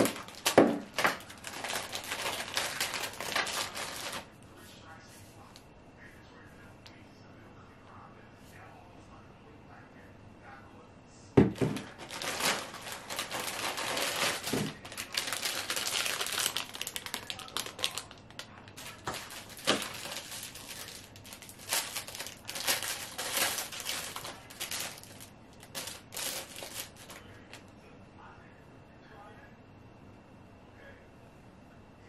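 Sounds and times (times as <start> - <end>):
plastic bags crinkling: 0.0 - 4.3, 11.4 - 27.6.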